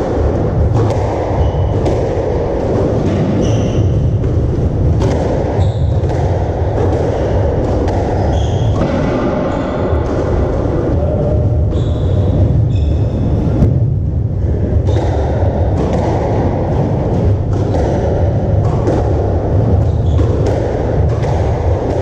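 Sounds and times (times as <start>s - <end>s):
steady low rumble: 0.0s - 22.0s
squash ball knocks: 0.6s - 10.5s, 14.8s - 22.0s.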